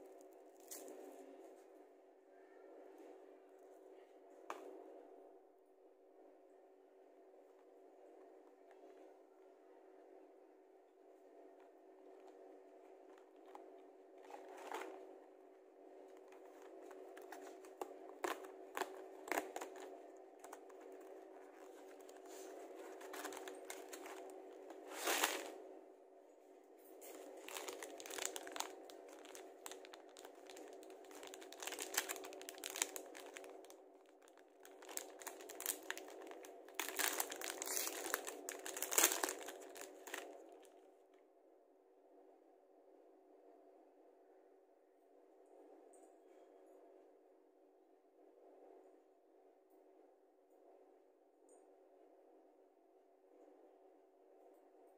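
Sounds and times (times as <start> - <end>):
steady low hum: 0.0 - 54.9
plastic wrappers crinkling and tearing: 16.2 - 25.6, 27.0 - 40.7.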